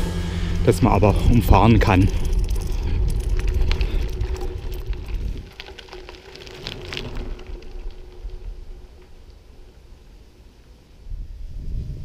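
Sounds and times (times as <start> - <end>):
faint steady hum: 0.0 - 12.0
low rumble: 0.0 - 12.0
bicycle clicks and rattles: 1.3 - 10.4.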